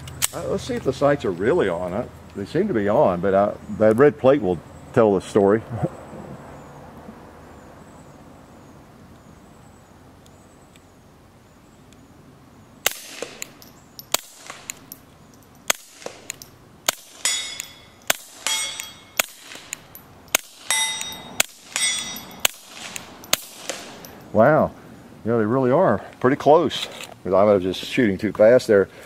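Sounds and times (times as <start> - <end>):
suppressed pistol shots: 12.8 - 15.0, 15.6 - 24.2
bullets clanging on metal plate: 12.8 - 24.3.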